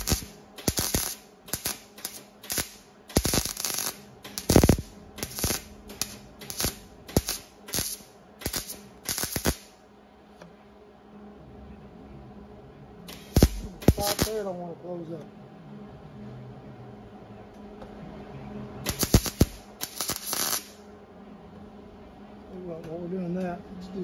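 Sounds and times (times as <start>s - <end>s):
welding arc bursts: 0.0s - 9.8s, 13.1s - 14.6s, 18.8s - 20.8s.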